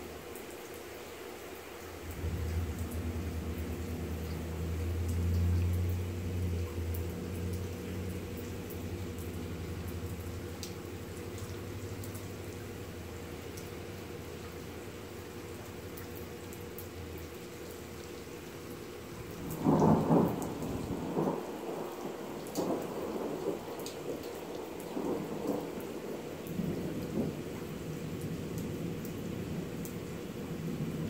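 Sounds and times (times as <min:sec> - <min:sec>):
steady rain: 0:00.0 - 0:31.0
thunder rumbling: 0:02.0 - 0:12.6, 0:19.2 - 0:29.6.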